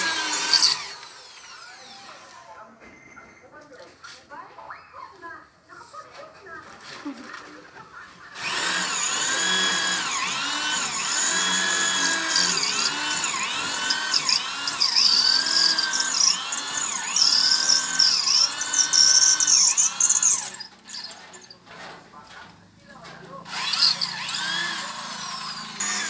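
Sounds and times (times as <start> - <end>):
drill bit grinding hiss: 0.0 - 2.1, 8.4 - 21.6, 23.5 - 26.0
electric drill motor whine: 0.0 - 2.4, 8.4 - 21.4, 23.5 - 26.0.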